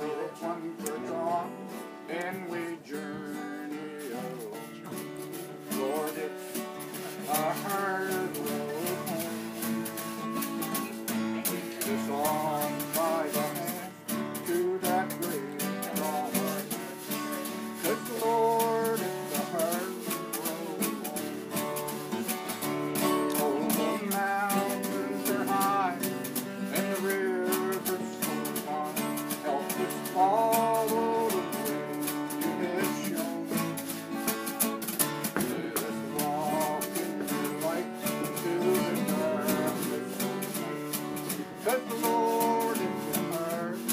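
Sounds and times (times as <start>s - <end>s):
acoustic guitar playing: 0.0s - 43.9s.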